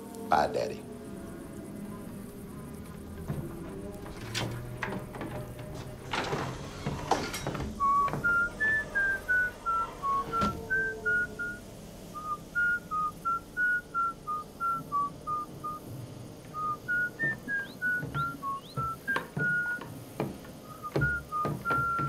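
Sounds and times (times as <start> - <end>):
man whistling a tune: 7.5 - 11.6, 12.2 - 15.9, 16.5 - 19.9, 20.6 - 22.0
short knocks: 16.9 - 22.0.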